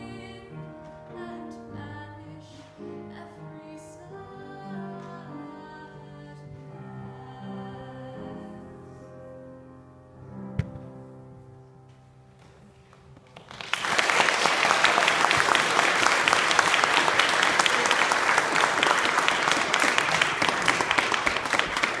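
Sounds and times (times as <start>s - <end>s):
audience applause: 13.2s - 22.0s.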